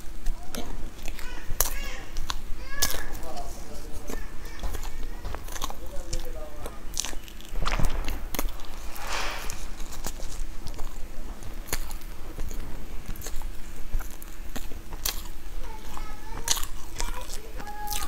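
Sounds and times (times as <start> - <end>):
chewing cream cake: 0.0 - 7.6, 11.7 - 18.0.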